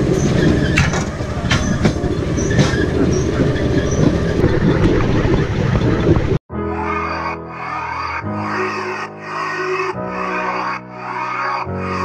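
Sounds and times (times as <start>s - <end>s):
wheels clacking over rail joints: 0.0s - 6.4s
motor and wheel rumble: 0.0s - 6.5s.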